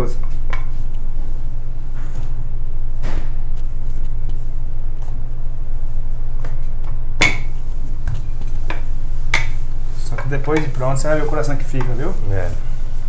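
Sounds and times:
steady low hum: 0:00.0 - 0:13.0
rolling pin tapping on counter: 0:10.2 - 0:10.8.

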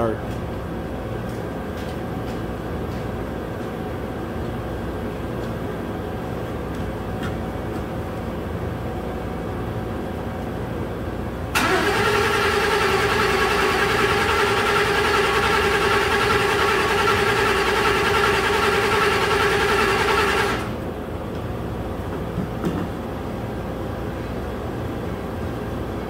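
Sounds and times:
engine cranking on starter: 0:11.6 - 0:20.8.

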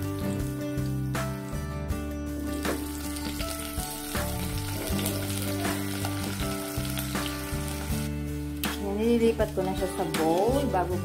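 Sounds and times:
potato wedges sizzling in oil: 0:02.5 - 0:08.6.

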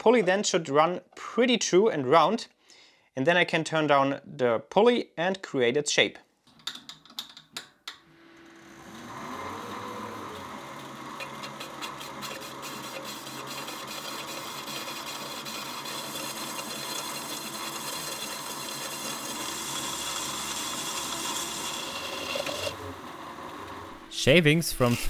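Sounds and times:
lathe motor hum: 0:08.2 - 0:24.2
cutting tool hissing on plastic: 0:11.4 - 0:22.8.

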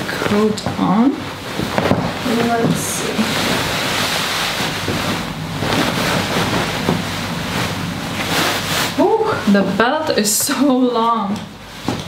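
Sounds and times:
coat rustling against microphone: 0:01.1 - 0:09.7.

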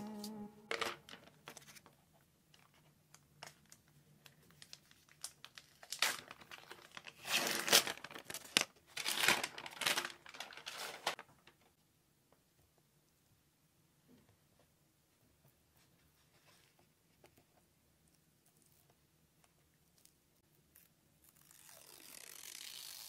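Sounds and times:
plastic wrapping crinkling: 0:02.5 - 0:11.7.

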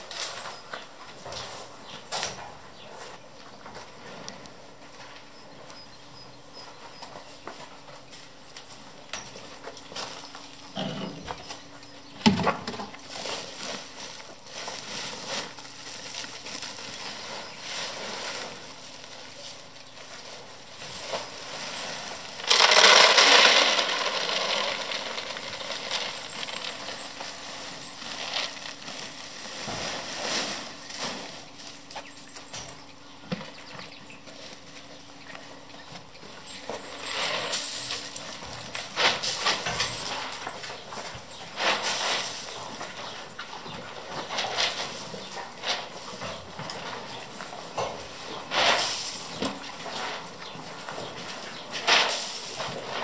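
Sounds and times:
knocks and rustling of sacks: 0:00.0 - 0:53.0
feed pouring into plastic bucket: 0:22.4 - 0:26.7.

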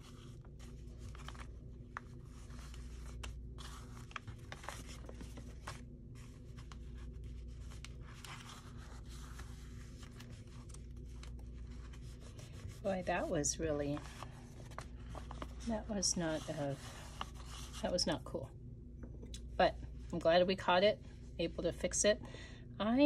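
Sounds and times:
paper rustling: 0:00.0 - 0:18.0
steady low hum: 0:00.0 - 0:23.0.

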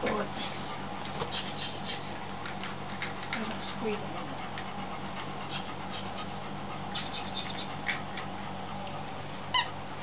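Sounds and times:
steady low hum: 0:00.0 - 0:10.0
squeaky dog toy squeak: 0:09.5 - 0:09.7.

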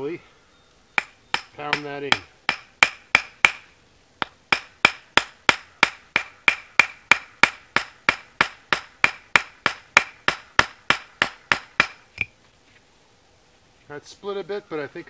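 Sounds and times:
wooden mallet striking knife: 0:01.0 - 0:03.6.

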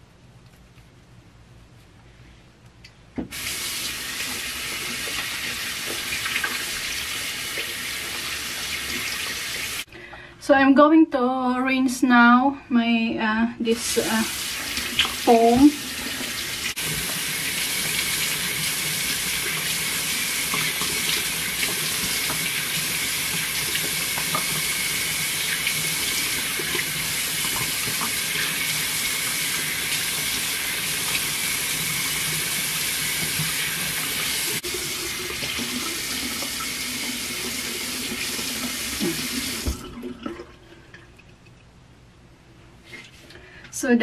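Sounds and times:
tap running into sink: 0:20.5 - 0:22.6, 0:23.3 - 0:24.9, 0:39.1 - 0:40.0.

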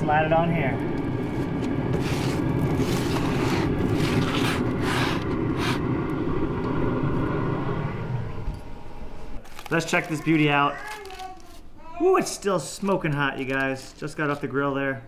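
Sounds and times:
low rumble: 0:00.0 - 0:09.4
metal spatula scraping grill: 0:01.9 - 0:05.8
foil crinkling: 0:09.4 - 0:11.7, 0:12.6 - 0:14.7.

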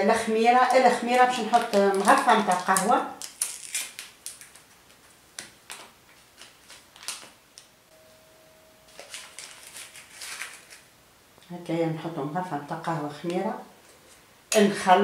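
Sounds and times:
faint steady hum: 0:00.0 - 0:15.0
paper sachet crinkling: 0:00.7 - 0:07.7, 0:08.9 - 0:10.9
spoon scraping in sachet: 0:08.9 - 0:10.9.

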